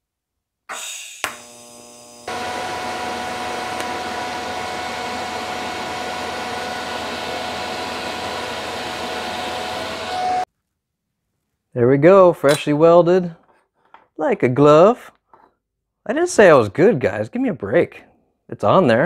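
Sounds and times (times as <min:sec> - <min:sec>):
welding arc hissing and humming: 0:01.2 - 0:10.4.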